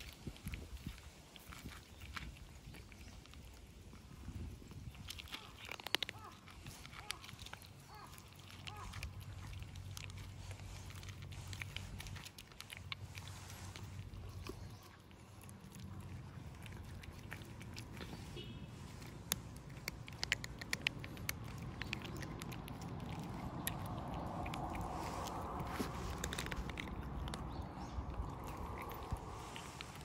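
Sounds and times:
cats crunching food: 0.0 - 30.0
low steady rumble: 6.1 - 30.0.

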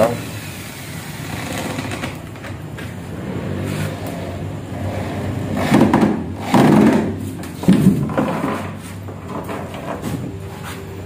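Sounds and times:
electric drill driving screws: 0.4 - 2.3.

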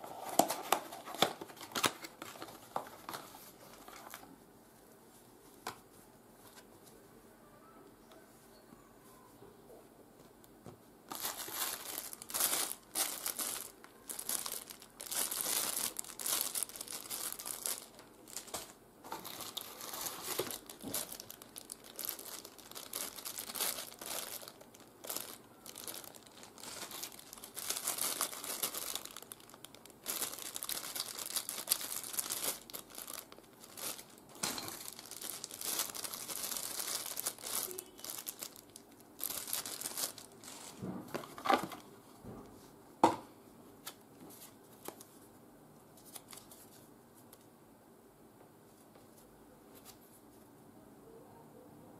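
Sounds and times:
plastic bags crinkling: 11.1 - 41.8.

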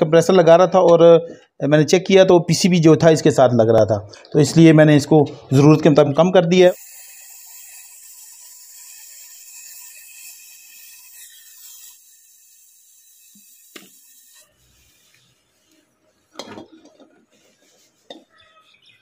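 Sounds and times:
brazing torch flame hissing: 6.6 - 16.0.

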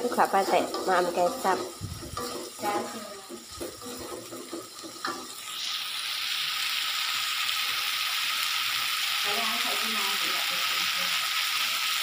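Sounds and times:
spatula stirring in a wok: 0.0 - 6.8
sauce sizzling and bubbling: 0.0 - 12.0.

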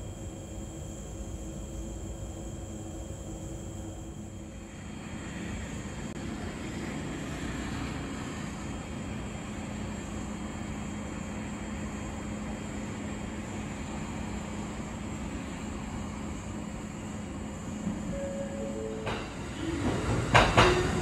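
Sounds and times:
train rumbling: 15.3 - 21.0.

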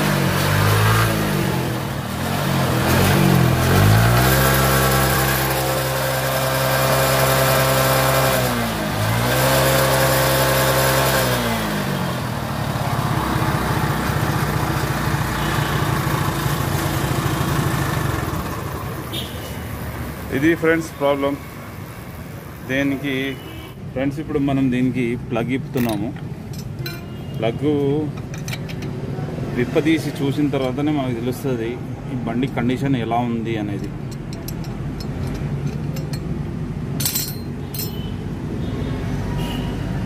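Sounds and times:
moped engine revving and idling: 0.0 - 23.2.

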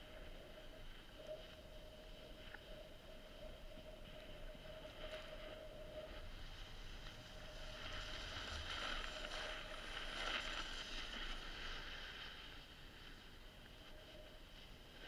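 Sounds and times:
snowboard scraping over snow: 4.0 - 15.0.

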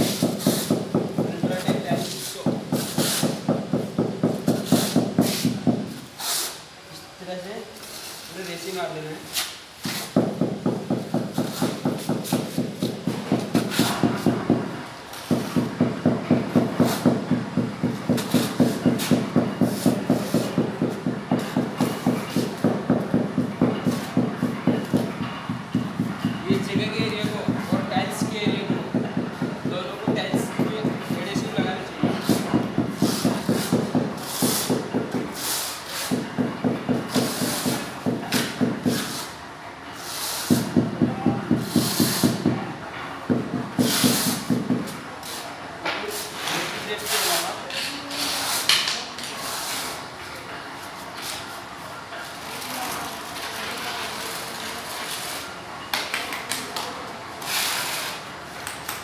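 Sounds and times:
short scraping hisses: 6.2 - 6.7
hand tapping floor tile: 36.0 - 39.1.

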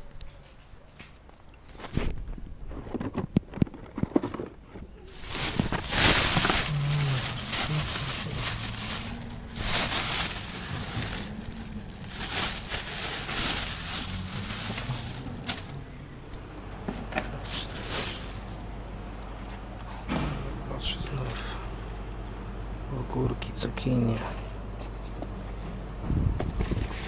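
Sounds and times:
plastic bags rustling: 5.1 - 19.1.

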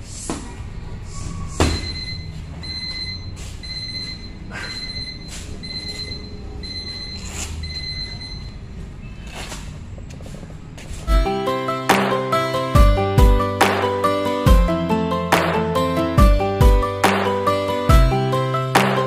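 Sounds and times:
timer beeping: 1.8 - 8.6.

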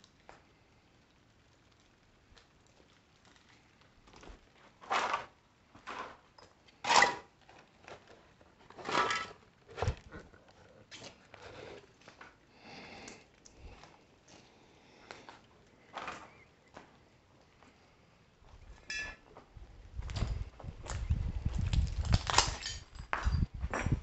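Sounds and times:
footsteps crunching over debris: 13.6 - 17.8, 18.4 - 24.0.

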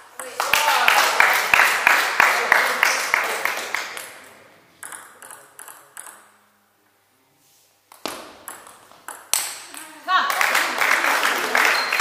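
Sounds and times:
table tennis ball clicks: 4.8 - 6.4, 7.9 - 9.9.

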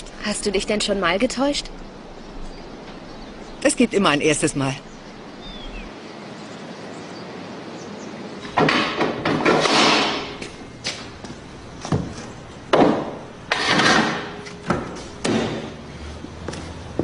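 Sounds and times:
thumps knocks and clunks: 11.8 - 15.7.

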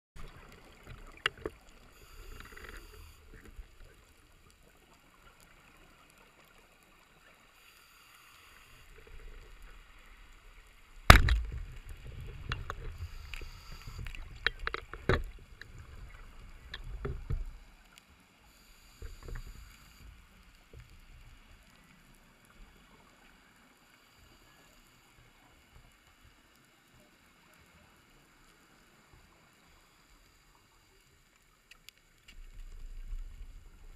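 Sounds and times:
low underwater rumbling: 8.9 - 17.8.

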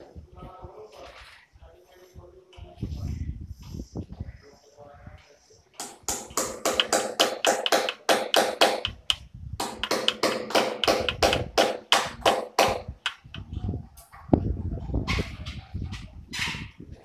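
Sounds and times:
rapid sharp taps: 5.8 - 13.4.

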